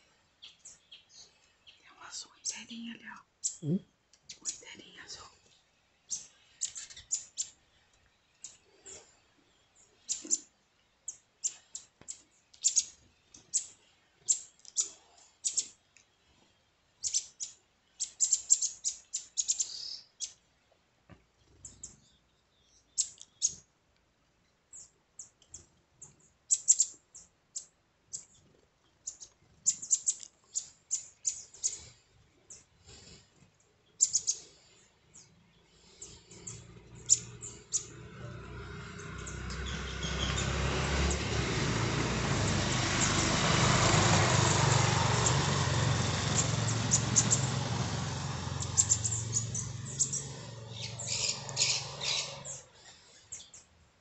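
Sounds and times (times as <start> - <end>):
bird chip calls: 6.1 - 7.6, 9.8 - 10.5, 11.1 - 15.8, 17.0 - 20.4, 21.6 - 23.6, 24.8 - 28.4, 29.0 - 32.7, 33.9 - 38.1, 44.4 - 47.6, 48.5 - 53.7.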